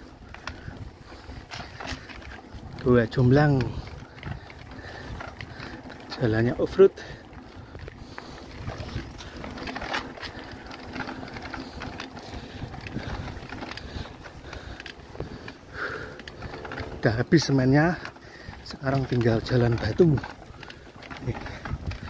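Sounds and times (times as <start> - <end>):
bike frame rattling: 0.0 - 22.0
bike tyres crunching on dirt: 0.0 - 22.0.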